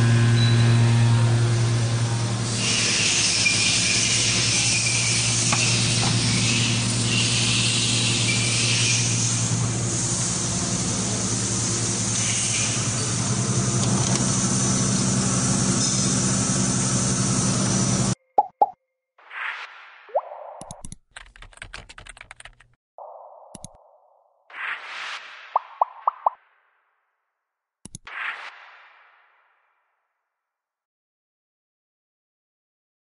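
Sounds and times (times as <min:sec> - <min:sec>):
machine low hum: 0:00.0 - 0:18.2
machine hiss: 0:01.3 - 0:18.2
thin high squeal: 0:02.6 - 0:09.2.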